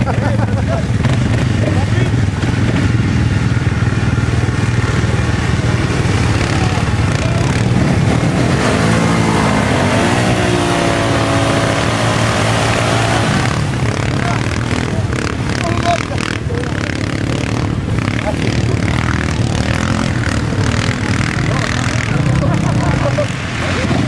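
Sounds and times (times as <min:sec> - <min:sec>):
quad bike engines running: 0:00.0 - 0:24.0
engine revving up: 0:05.4 - 0:24.0.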